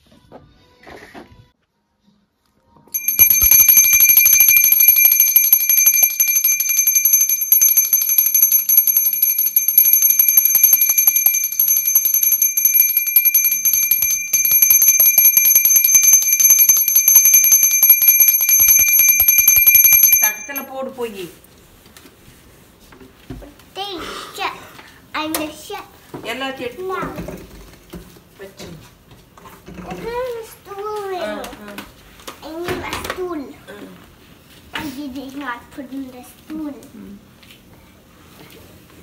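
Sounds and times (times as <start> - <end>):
brass hand bell ringing: 3.0 - 20.7.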